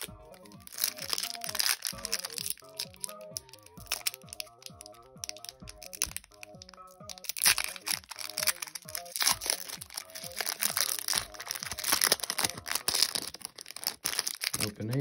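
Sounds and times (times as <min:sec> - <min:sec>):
music with a steady beat: 0:00.0 - 0:13.2
foil pack crinkling and tearing: 0:00.0 - 0:15.0.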